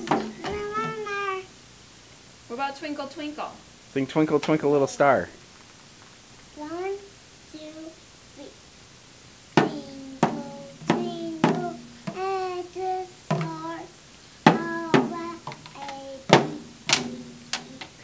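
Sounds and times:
toy drum strikes: 0.0s - 1.0s, 9.6s - 12.5s, 13.3s - 13.8s, 14.4s - 18.0s
small child singing: 0.0s - 1.5s, 6.5s - 8.6s, 9.5s - 18.0s.

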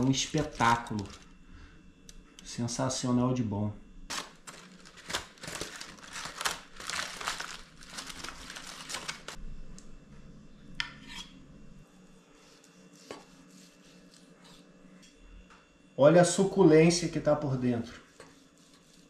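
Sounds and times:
aluminium foil crinkling: 0.0s - 1.3s, 4.1s - 9.4s.

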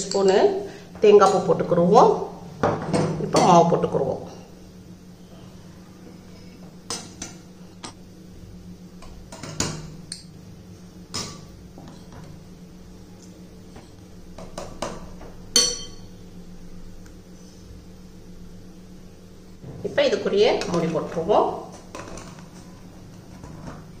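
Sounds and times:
steady low hum: 0.0s - 24.0s
metal spoon clinking on glass bowl: 15.6s - 16.1s.

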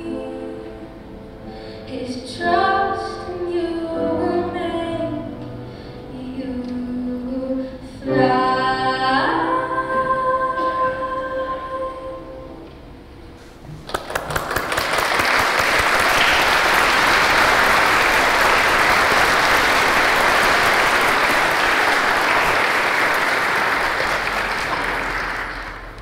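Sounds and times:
audience applauding: 13.8s - 26.0s.

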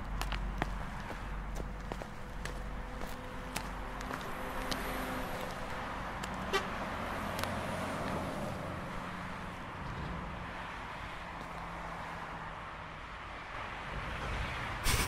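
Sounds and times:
road traffic noise: 0.0s - 15.0s
vehicle horn tooting: 6.5s - 6.8s.

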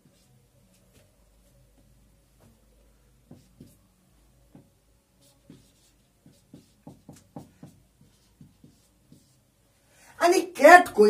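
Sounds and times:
marker pen writing on whiteboard: 0.0s - 1.1s, 3.2s - 3.9s, 4.5s - 9.5s.

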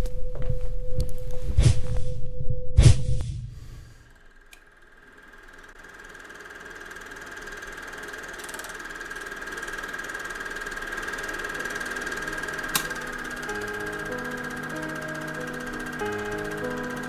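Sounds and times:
film projector humming: 3.9s - 17.0s
sharp click: 12.7s - 13.0s.

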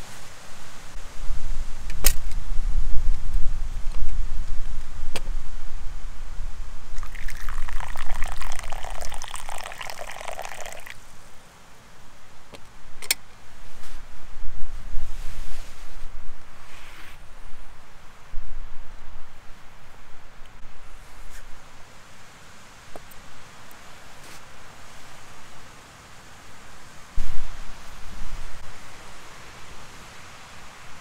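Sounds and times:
wind rumble on microphone: 0.0s - 10.7s, 12.8s - 21.7s, 27.1s - 29.2s
water pouring into a cup: 7.0s - 11.0s.

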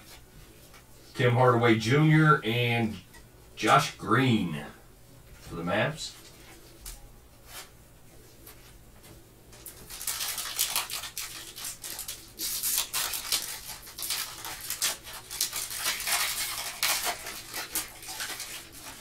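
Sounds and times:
foil wrapper crinkling and tearing: 9.6s - 19.0s.

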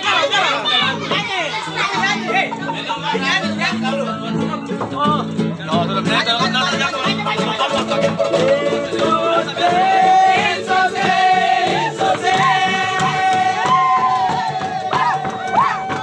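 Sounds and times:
strummed acoustic guitars: 0.0s - 16.0s
ukulele: 0.7s - 16.0s
men singing together: 7.4s - 16.0s.

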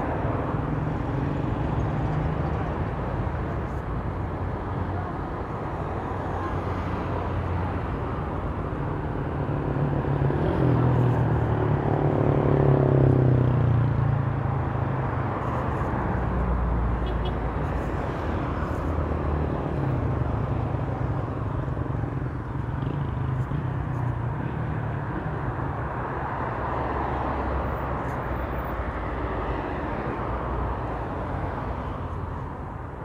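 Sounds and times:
road traffic: 0.0s - 33.0s.

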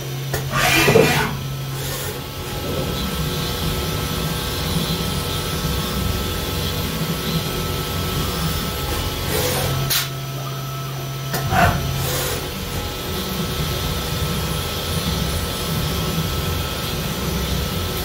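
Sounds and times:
milling machine cutting plastic: 0.0s - 10.4s.

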